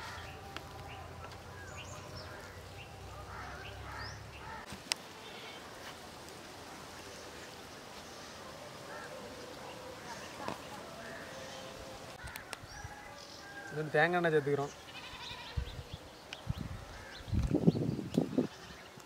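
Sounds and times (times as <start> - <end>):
birds chirping and calling: 0.0 - 5.8, 6.8 - 19.0.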